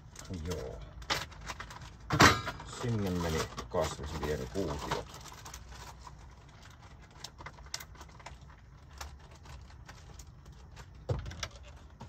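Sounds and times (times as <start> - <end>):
plastic zip bag crinkling: 2.7 - 11.9.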